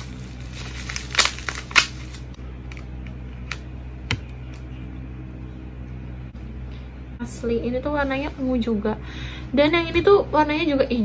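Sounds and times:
plastic wrapping crinkling: 0.0 - 2.3
steady low hum: 0.0 - 11.0.

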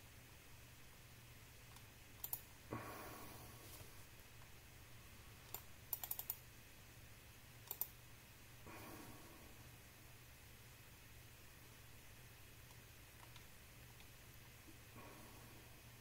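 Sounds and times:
computer mouse clicks: 1.7 - 2.5, 5.4 - 6.4, 7.6 - 8.0, 12.6 - 14.2
soft rustle: 3.3 - 4.4.

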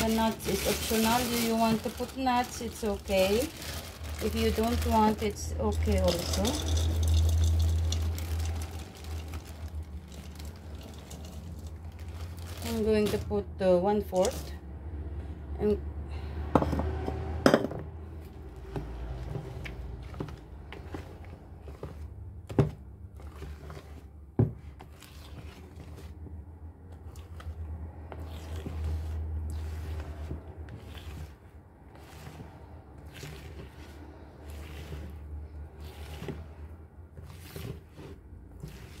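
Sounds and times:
whisk scraping batter in bowl: 0.0 - 13.2, 18.6 - 39.0.

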